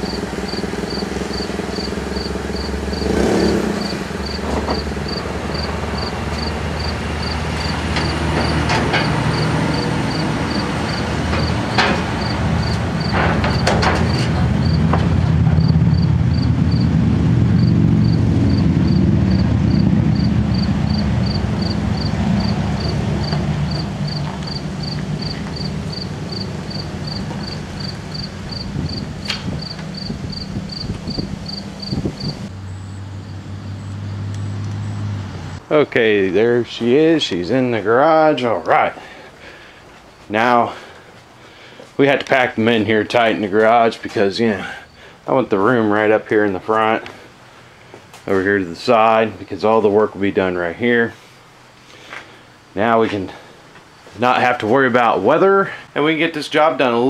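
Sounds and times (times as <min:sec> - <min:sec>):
car engine running: 0:00.0 - 0:32.6
knocks and clunks: 0:04.3 - 0:05.7, 0:07.5 - 0:15.8.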